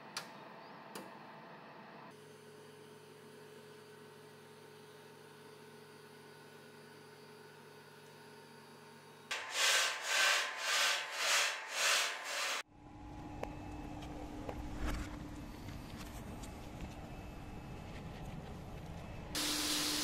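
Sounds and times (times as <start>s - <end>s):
abrasive scraping on steel rail: 9.3s - 12.6s
electrical mains hum: 12.6s - 20.0s.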